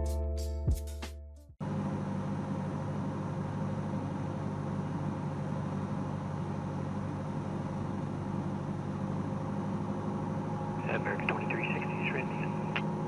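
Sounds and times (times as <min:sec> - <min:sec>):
airplane engine and propeller droning: 0:01.6 - 0:13.0.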